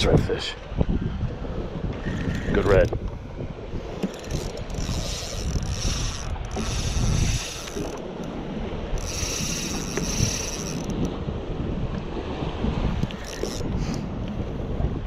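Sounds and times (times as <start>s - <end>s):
wind rumbling on microphone: 0.0s - 15.0s
fishing reel whirring: 2.0s - 3.1s, 3.7s - 11.2s, 13.0s - 14.0s.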